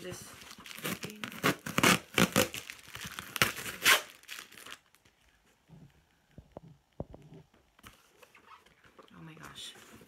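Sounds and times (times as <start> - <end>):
packing tape ripping: 0.5 - 5.0.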